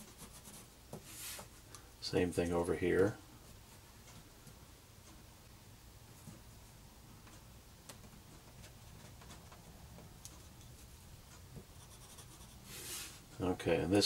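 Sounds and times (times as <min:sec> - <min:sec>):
pencil scratching on paper: 0:00.0 - 0:01.5, 0:11.7 - 0:13.2.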